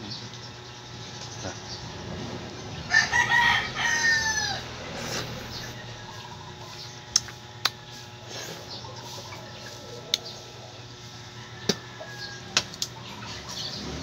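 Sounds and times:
rooster crowing: 2.8s - 6.6s, 9.0s - 13.2s.

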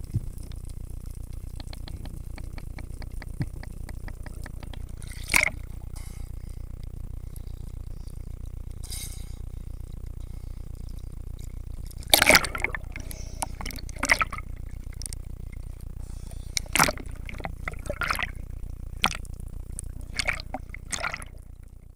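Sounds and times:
low rumble: 0.0s - 21.9s
seawater splashing against camera: 1.5s - 6.0s, 11.8s - 21.6s.

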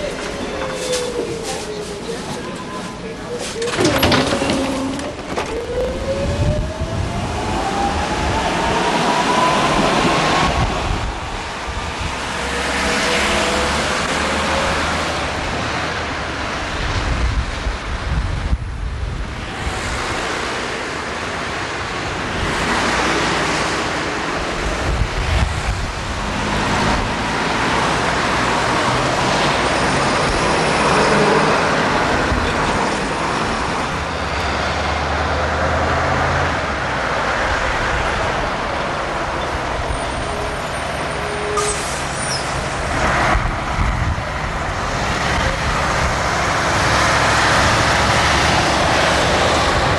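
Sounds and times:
cars passing: 0.0s - 49.9s
tram motor rising whine: 3.8s - 11.0s
wind rumbling on microphone: 5.0s - 12.5s, 13.9s - 30.7s, 42.5s - 49.9s.

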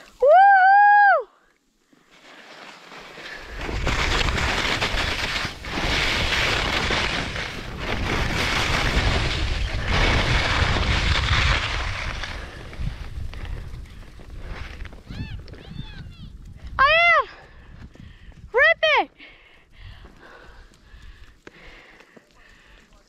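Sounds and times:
skis scraping over snow: 1.9s - 16.7s
wind buffeting microphone: 5.6s - 18.6s.

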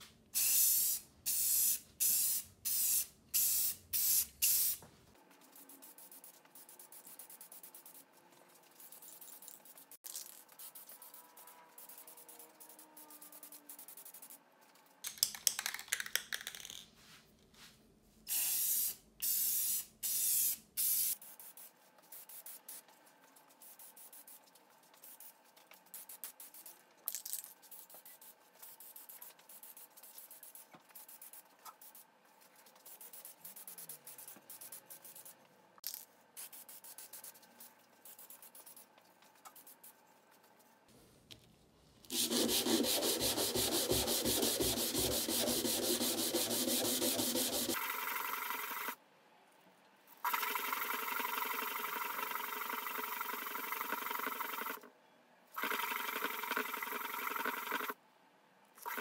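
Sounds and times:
spray can hissing: 0.4s - 4.8s, 18.3s - 21.2s
spray can rattling: 15.0s - 16.8s.

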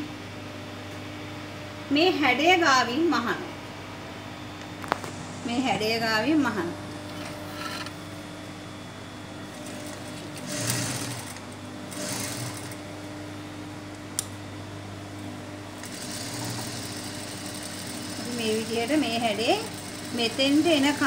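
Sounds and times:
sewing machine motor hum: 7.0s - 8.0s, 9.5s - 13.0s, 15.7s - 21.0s.

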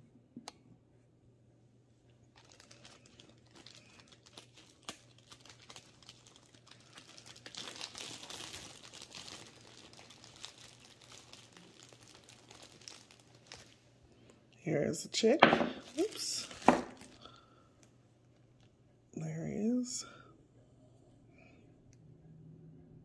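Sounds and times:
plastic bag crinkling: 2.2s - 14.4s, 15.2s - 17.6s.

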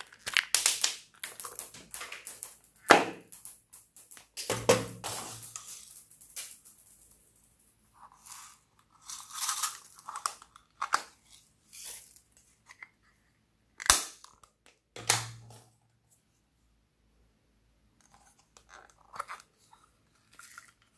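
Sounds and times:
sequins rustling: 1.0s - 12.4s.

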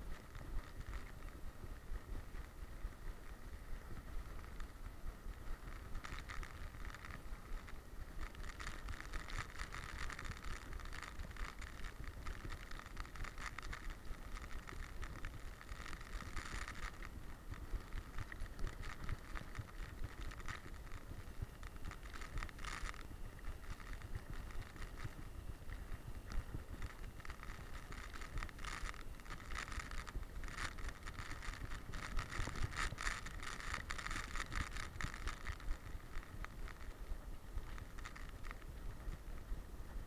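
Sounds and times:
low wind rumble: 0.0s - 40.0s.

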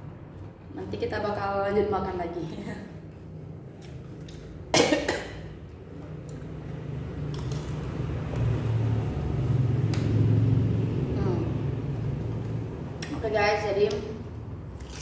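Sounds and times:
person coughing: 4.7s - 5.5s
passing vehicle engine rumble: 5.8s - 14.8s.

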